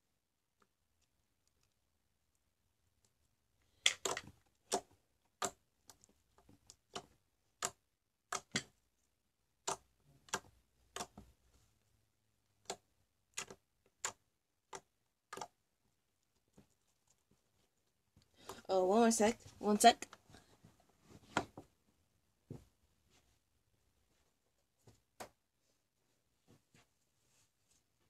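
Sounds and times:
slime clicking and popping: 0:03.8 - 0:08.8, 0:12.6 - 0:15.6.

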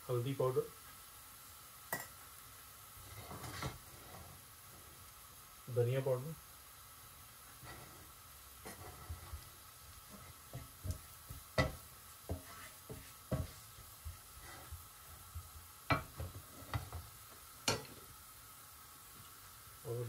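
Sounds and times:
faint sizzle: 0:00.0 - 0:20.0
wooden spatula scraping a pan: 0:03.0 - 0:05.0, 0:07.5 - 0:18.0.

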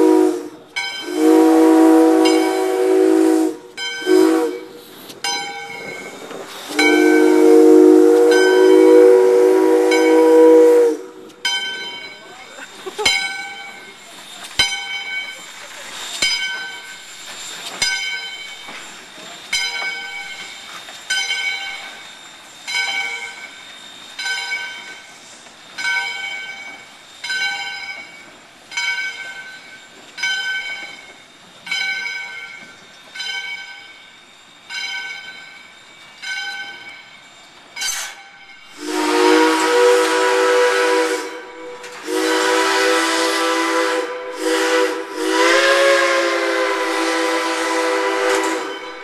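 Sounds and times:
steam whistle blowing: 0:00.0 - 0:04.9, 0:06.6 - 0:11.4, 0:38.5 - 0:49.0
steam locomotive bell ringing: 0:00.0 - 0:49.0.

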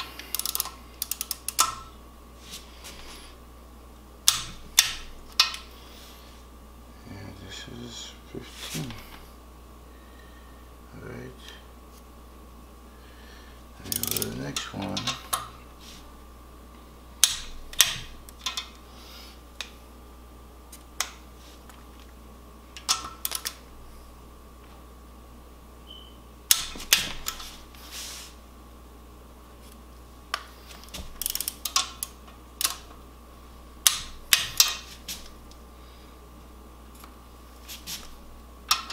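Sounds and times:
ratchet clicking: 0:00.3 - 0:01.9, 0:13.9 - 0:14.3, 0:31.2 - 0:32.8.

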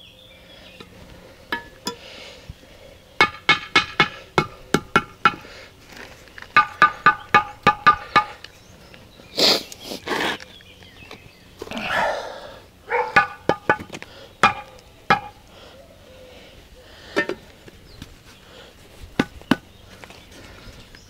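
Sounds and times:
trowel tapping blocks: 0:03.2 - 0:05.5, 0:06.5 - 0:08.4, 0:13.2 - 0:15.4.

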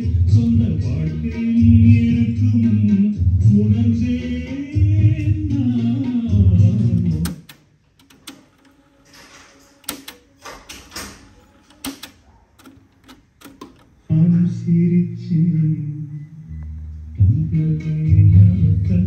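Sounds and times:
music with singing and bass: 0:00.0 - 0:07.5, 0:14.0 - 0:19.0
cassette deck mechanical clicks: 0:07.0 - 0:14.0.

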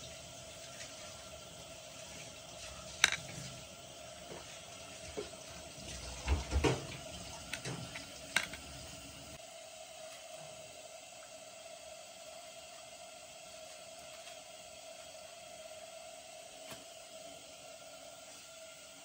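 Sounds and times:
spoon clicking and scraping: 0:07.5 - 0:08.7.

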